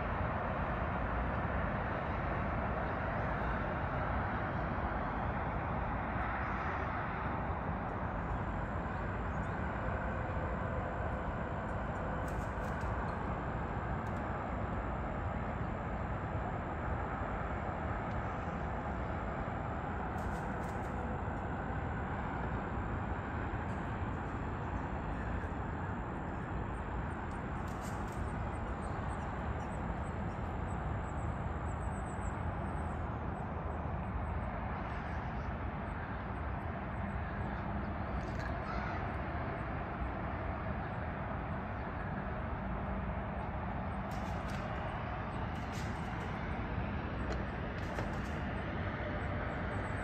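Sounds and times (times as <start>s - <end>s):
distant city traffic hum: 0.0s - 50.0s.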